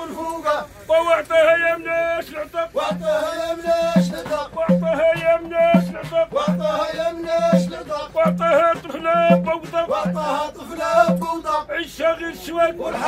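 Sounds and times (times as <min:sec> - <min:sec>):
men singing a chant together: 0:00.0 - 0:13.0
frame drum and hand drums beating: 0:02.8 - 0:11.7.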